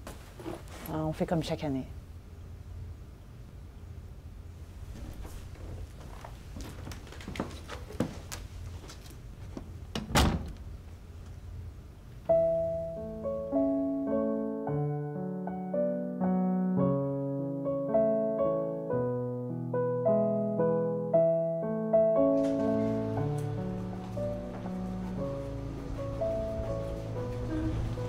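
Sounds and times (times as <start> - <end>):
wooden door shutting: 9.9 - 10.6, 22.2 - 26.3
gentle piano music: 12.2 - 28.0.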